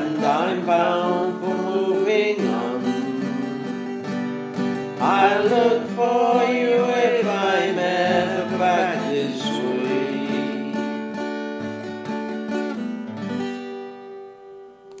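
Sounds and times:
man singing folk ballad: 0.0 - 11.4
strummed acoustic guitar: 0.0 - 15.0.

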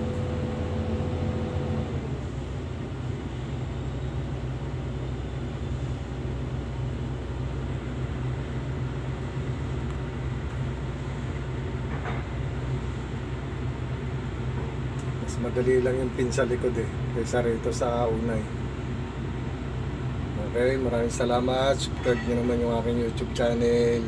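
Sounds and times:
diesel engine idling: 0.0 - 24.0.

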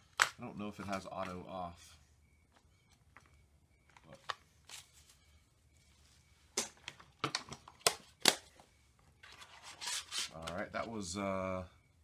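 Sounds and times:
plastic case clicks and knocks: 6.6 - 8.4.

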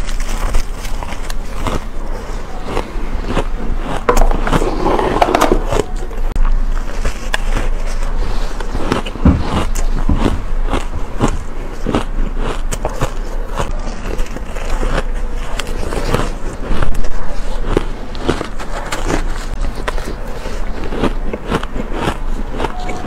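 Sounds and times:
chewing ice: 0.0 - 23.0
crunching shaved ice: 0.0 - 23.0
hand scooping and squeezing ice: 3.2 - 10.0.

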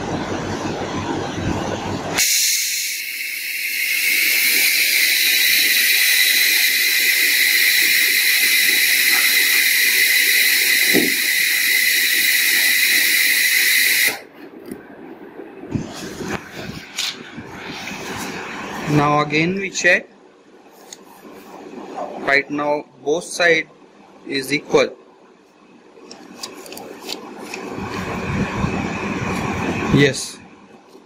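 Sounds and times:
compressed air hissing: 2.2 - 14.3.

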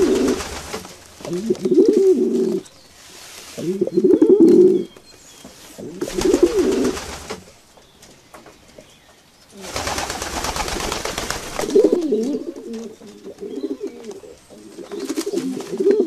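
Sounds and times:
flapping wings: 0.0 - 2.1, 6.0 - 7.6, 9.6 - 13.2
pigeons cooing: 0.0 - 2.7, 3.6 - 5.0, 5.7 - 7.5, 9.6 - 16.0.

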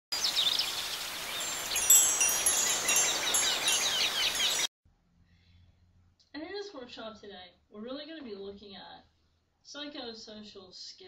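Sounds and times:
chimes ringing: 1.3 - 4.7.

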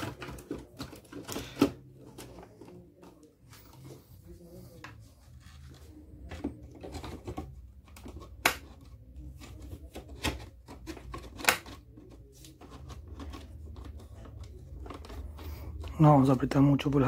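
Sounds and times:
sharp plastic snaps: 8.3 - 8.8, 10.2 - 11.8.

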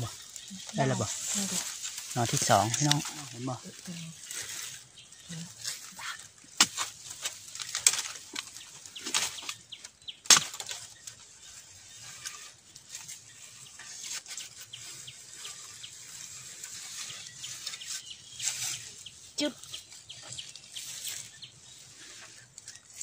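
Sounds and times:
dry leaves crackling and rustling: 0.0 - 23.0
blade chopping bamboo: 6.5 - 9.6, 10.2 - 11.2.

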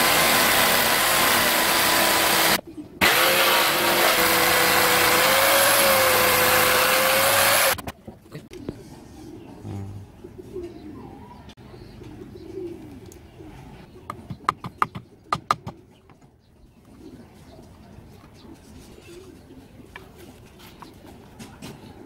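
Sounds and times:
birds cooing: 2.6 - 3.0, 8.3 - 22.0.

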